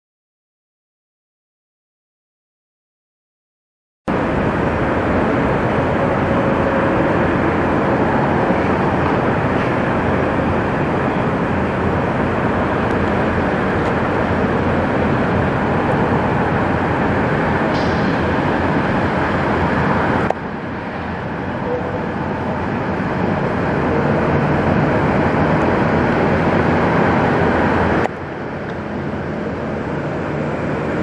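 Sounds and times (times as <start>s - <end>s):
truck diesel engine rumbling: 4.1s - 31.0s.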